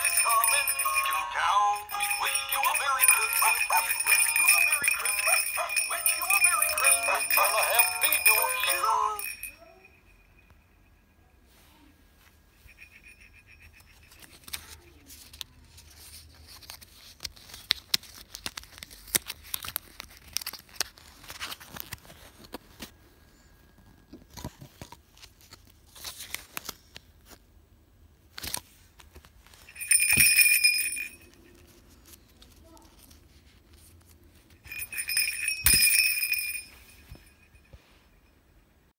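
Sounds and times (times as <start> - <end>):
little bells jingling: 0.0 - 10.9, 12.6 - 14.7, 29.6 - 31.7, 34.6 - 38.4.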